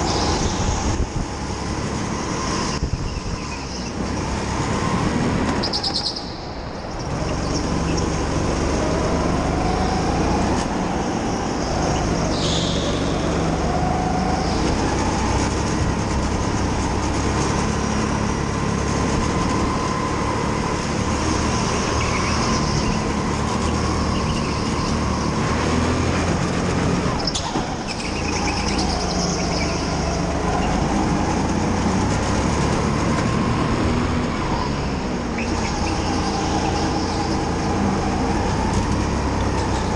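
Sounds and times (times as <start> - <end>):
go-kart motor: 0.0 - 39.9.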